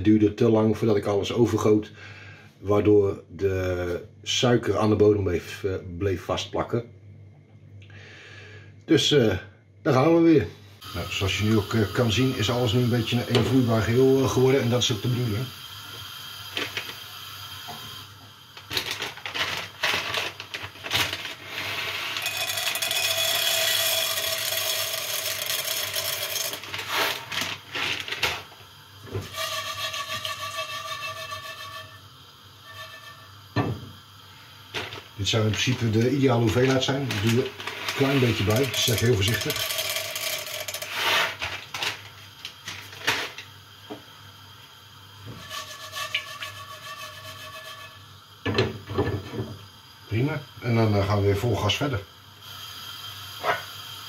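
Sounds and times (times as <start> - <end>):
popcorn kernels poured into pot: 10.9 - 28.6, 29.2 - 31.3, 34.6 - 43.5, 45.4 - 47.8
plastic bag rustling: 18.6 - 22.6, 25.9 - 28.6, 34.7 - 40.3, 40.9 - 43.4
pot shaken on burner grate: 18.7 - 28.5, 29.3 - 31.9, 34.8 - 42.0, 45.4 - 48.0.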